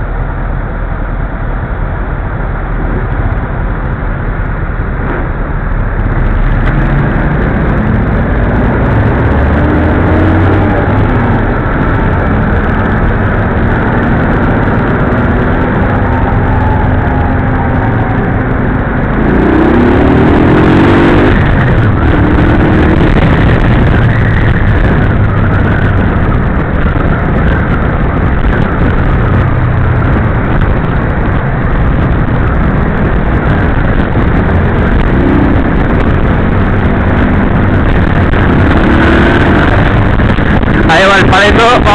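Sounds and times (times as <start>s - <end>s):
motorcycle and scooter engines: 0.0s - 41.9s
road noise: 0.0s - 41.9s
engine revving up: 6.1s - 12.8s, 13.9s - 25.4s.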